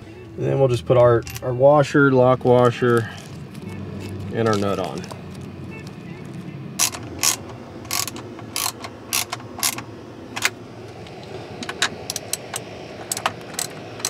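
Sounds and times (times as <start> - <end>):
ratchet wrench clicking: 6.8 - 9.8, 12.1 - 14.0.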